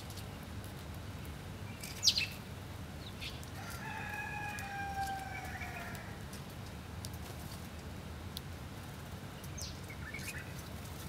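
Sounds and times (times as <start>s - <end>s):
sparrows chirping: 1.6s - 3.5s, 9.3s - 11.0s
rooster crowing: 3.6s - 6.2s.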